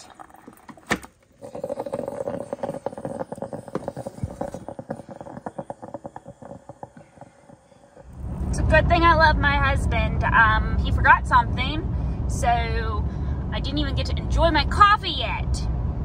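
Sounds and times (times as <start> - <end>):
coffee maker gurgling and sputtering: 0.0 - 11.1.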